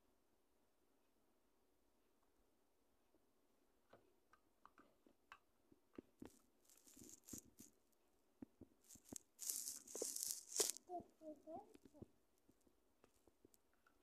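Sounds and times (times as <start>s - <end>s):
rustling: 6.1s - 7.9s, 8.6s - 13.6s.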